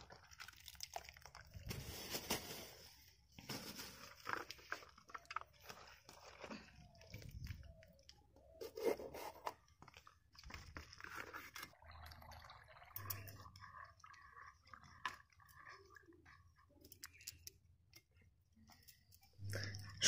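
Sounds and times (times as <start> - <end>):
water running into a bowl: 11.7 - 16.4.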